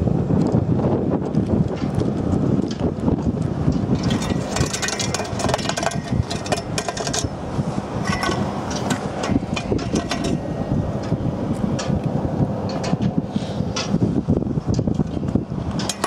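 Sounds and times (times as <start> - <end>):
wind buffeting microphone: 0.0 - 16.0
metal roller tubes knocking: 3.6 - 16.0.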